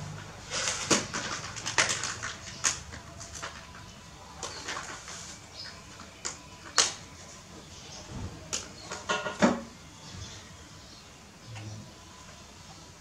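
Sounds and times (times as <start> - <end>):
objects knocking and clicking: 0.5 - 3.8.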